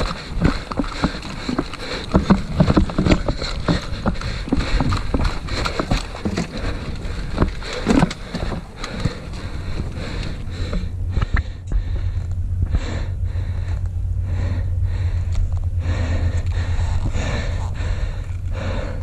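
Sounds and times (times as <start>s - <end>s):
running footsteps on leaf litter: 0.0s - 10.8s
gear jostling: 0.0s - 12.4s
low rumble: 0.0s - 19.0s.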